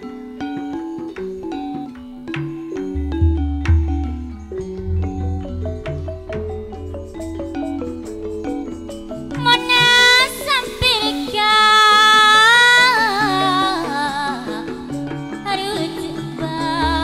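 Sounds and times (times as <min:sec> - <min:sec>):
gamelan accompaniment: 0:00.0 - 0:17.0
woman singing into a microphone: 0:09.4 - 0:17.0.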